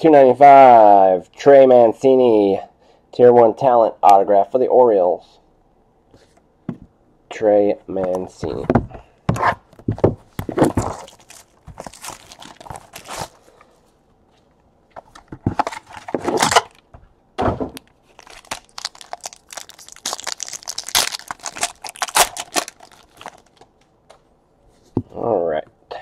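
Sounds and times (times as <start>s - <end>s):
plastic wrapper rustling and tearing: 10.4s - 13.5s, 15.1s - 16.9s, 18.0s - 23.8s.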